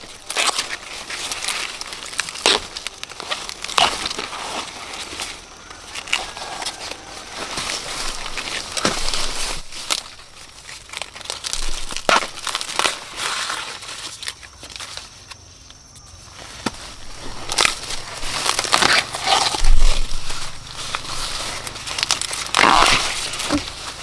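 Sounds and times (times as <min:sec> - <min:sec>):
corn husks rustling: 0:00.0 - 0:24.0
sharp cracks: 0:16.6 - 0:24.0.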